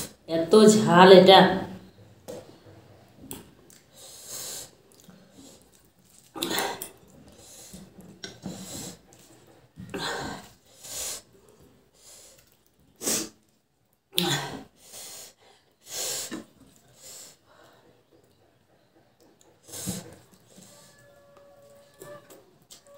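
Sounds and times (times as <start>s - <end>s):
sharp noisy breaths: 3.9s - 4.8s, 14.3s - 18.1s.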